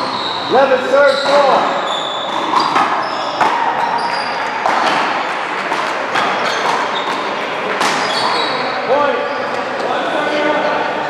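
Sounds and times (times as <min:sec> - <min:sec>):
sneakers squeaking on court: 0:00.0 - 0:09.8
ball smacking off paddles and wall: 0:02.3 - 0:08.4.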